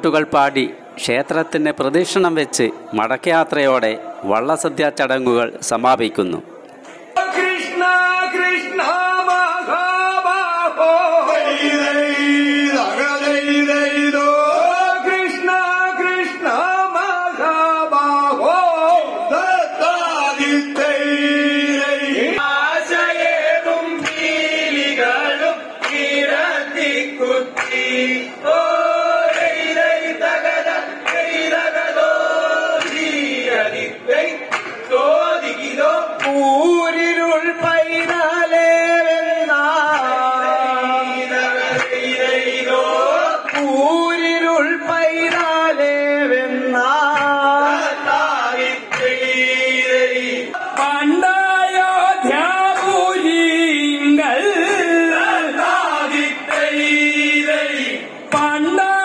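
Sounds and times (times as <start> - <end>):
men singing through loudspeaker: 0.0 - 5.6, 7.1 - 59.0
clapping in time: 32.8 - 33.2, 34.5 - 34.8, 42.7 - 43.8.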